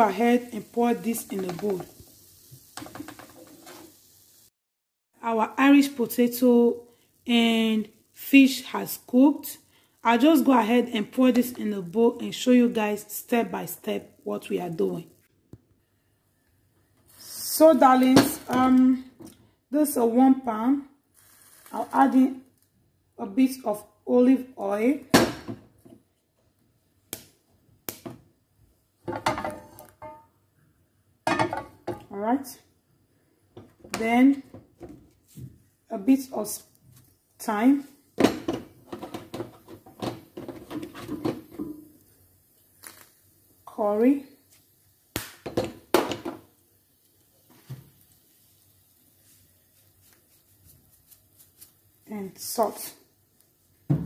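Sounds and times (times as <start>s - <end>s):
kitchen items clattering: 29.0s - 30.3s, 31.3s - 32.0s, 38.2s - 41.8s.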